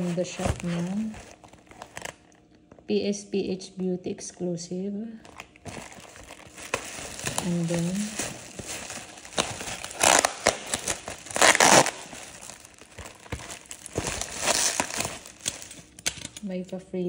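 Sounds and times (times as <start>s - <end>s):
plastic bag and bubble wrap crinkling: 0.0s - 2.4s, 5.1s - 16.6s.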